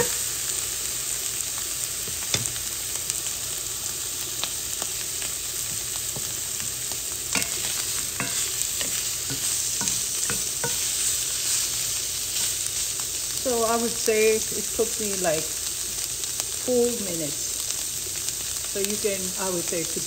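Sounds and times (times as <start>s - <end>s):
steak sizzling in a pan: 0.0s - 20.0s
spatula scraping a pan: 5.6s - 13.2s.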